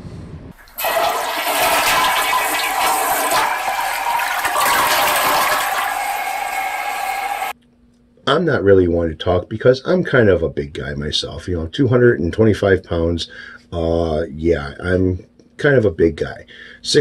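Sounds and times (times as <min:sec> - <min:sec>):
toilet flushing: 0:00.6 - 0:07.6.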